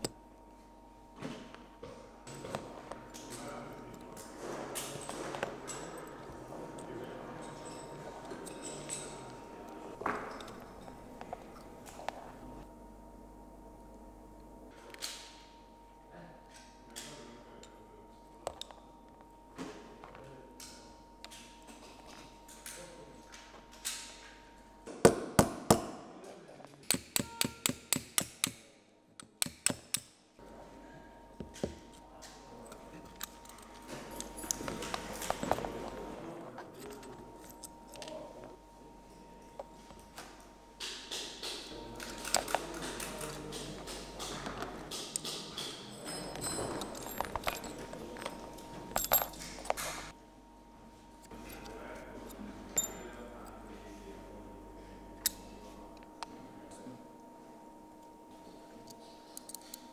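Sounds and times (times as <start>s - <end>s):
hammer tapping steel punch: 26.9s - 28.6s.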